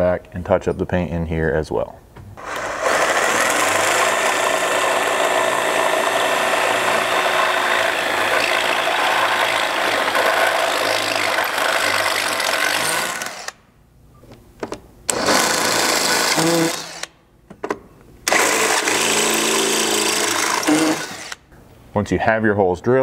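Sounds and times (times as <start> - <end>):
cordless drill boring through steel: 2.4 - 13.6, 15.1 - 17.1, 18.3 - 21.4.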